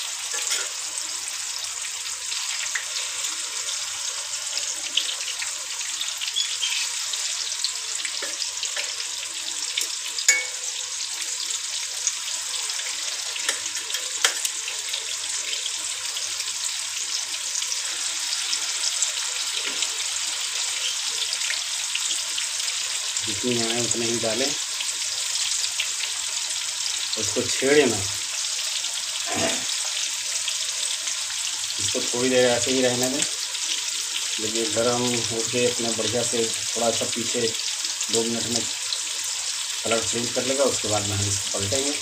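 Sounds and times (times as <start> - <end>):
fish sizzling in hot oil: 0.0 - 42.0
oil crackling and spitting: 29.2 - 29.9.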